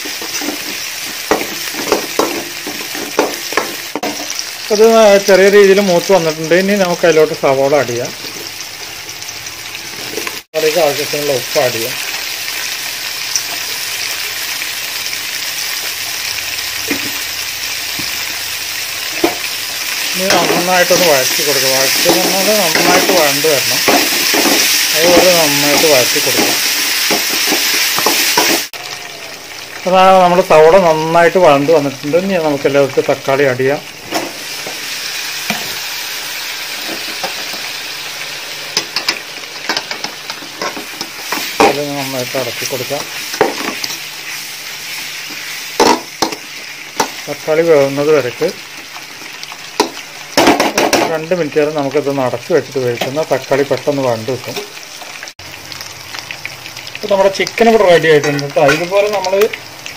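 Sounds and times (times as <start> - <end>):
vegetables sizzling in hot oil: 0.0 - 59.9.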